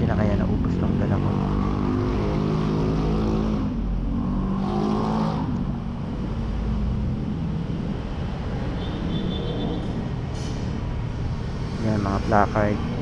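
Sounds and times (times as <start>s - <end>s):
motorcycle engine: 0.0s - 6.5s.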